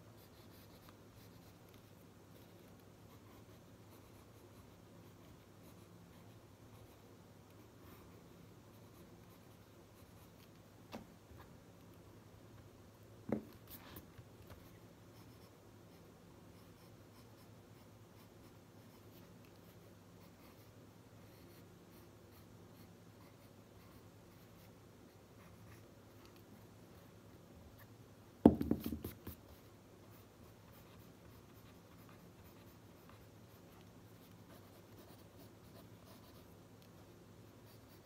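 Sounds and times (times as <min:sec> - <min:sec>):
pen scratching on paper: 0:00.2 - 0:10.6, 0:28.5 - 0:36.9, 0:37.5 - 0:38.0
sharp knock: 0:28.4 - 0:29.1.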